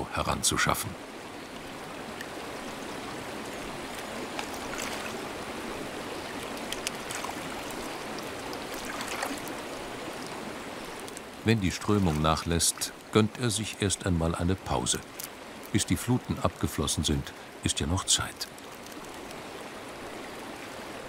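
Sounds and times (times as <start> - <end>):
river water rushing: 0.0 - 21.0
faint ticks: 6.4 - 9.6, 18.3 - 19.4.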